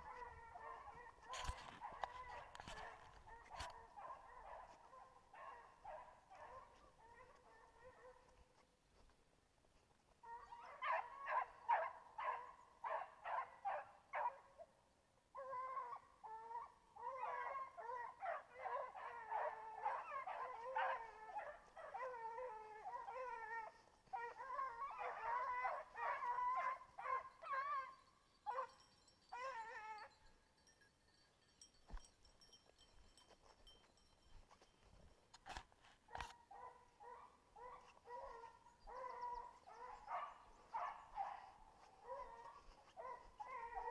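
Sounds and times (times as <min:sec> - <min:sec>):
hounds baying: 0:00.0 - 0:08.4, 0:10.2 - 0:14.5, 0:15.4 - 0:30.2, 0:34.4 - 0:43.9.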